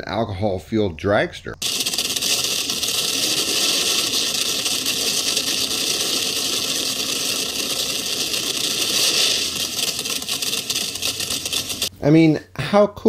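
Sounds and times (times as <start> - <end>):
dragster engine rushing: 1.6 - 11.9.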